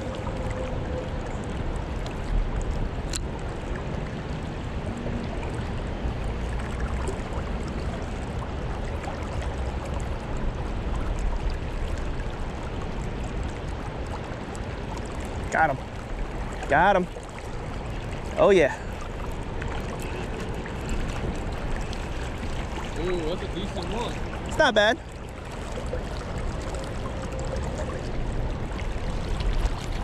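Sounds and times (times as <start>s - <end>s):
river current rushing: 11.7s - 30.0s.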